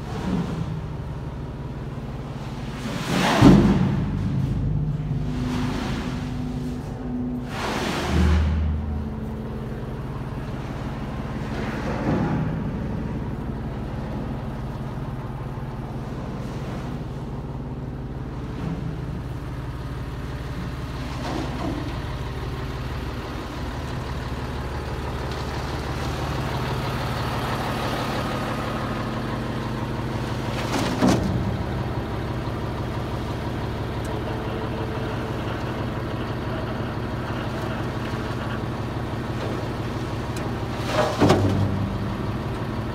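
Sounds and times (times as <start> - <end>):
diesel truck engine idling: 0.0 - 42.9
metal knocks and clanks: 11.5 - 13.6.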